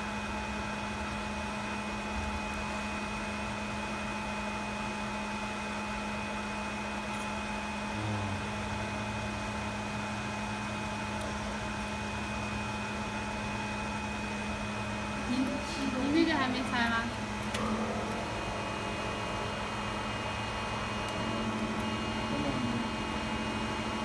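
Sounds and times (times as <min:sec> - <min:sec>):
fan and blower hum with whine: 0:00.0 - 0:24.0
lower hum: 0:07.8 - 0:13.4, 0:15.0 - 0:24.0.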